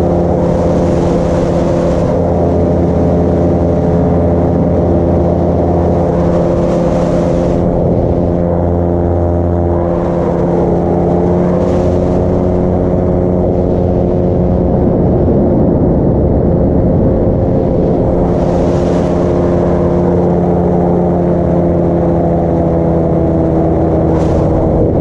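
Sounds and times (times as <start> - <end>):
paramotor engine droning: 0.0 - 25.0.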